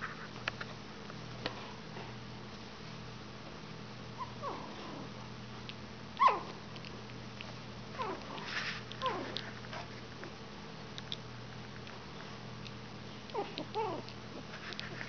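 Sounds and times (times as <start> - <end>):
puppies whimpering and squeaking: 4.2 - 5.1, 6.2 - 6.5, 8.0 - 9.9, 13.3 - 15.0.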